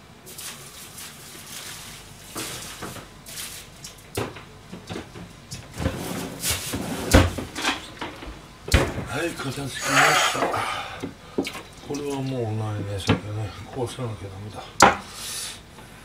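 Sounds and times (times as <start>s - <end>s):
kitchen things knocking and clattering: 4.2s - 9.1s
cupboard doors opening and shutting: 4.2s - 9.2s.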